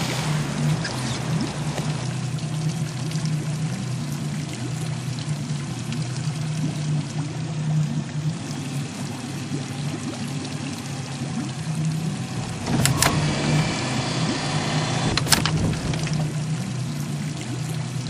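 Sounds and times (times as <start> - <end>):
outboard motor idling: 0.0 - 18.0
water splashing and gurgling: 0.0 - 18.0.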